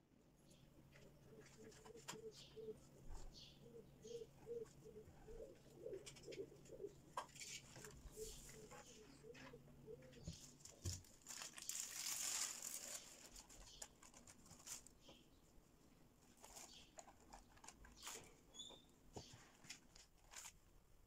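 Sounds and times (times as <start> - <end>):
dove cooing: 1.1 - 10.8
plastic film crinkling: 10.6 - 15.0, 16.3 - 18.3, 19.6 - 20.6.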